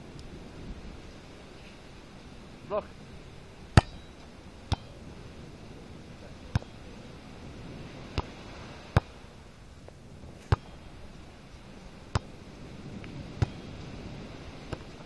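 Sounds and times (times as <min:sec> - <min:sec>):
steady background hiss: 0:00.0 - 0:15.0
volleyball being struck: 0:03.8 - 0:04.1, 0:04.7 - 0:04.9, 0:06.5 - 0:06.8.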